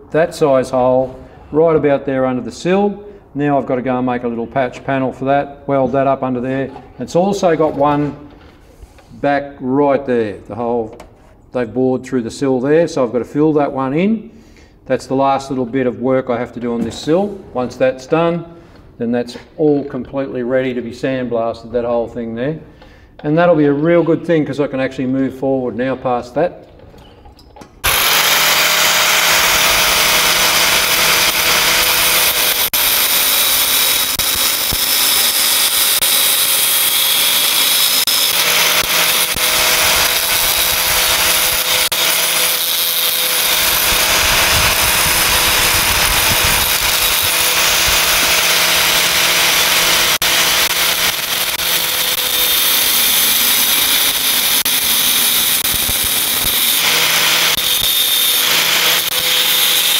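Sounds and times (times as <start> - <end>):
angle grinder grinding sheet steel: 27.8 - 59.9.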